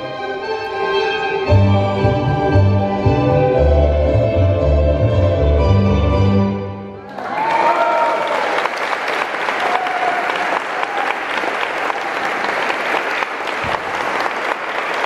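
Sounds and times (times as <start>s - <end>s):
tango music: 0.0s - 7.0s
audience applause: 7.1s - 15.0s.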